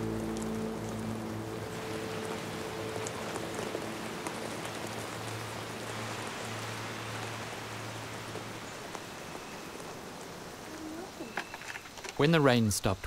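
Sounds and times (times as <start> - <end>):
low steady drone: 0.0 - 8.6
heavy rain on foliage: 0.0 - 13.0.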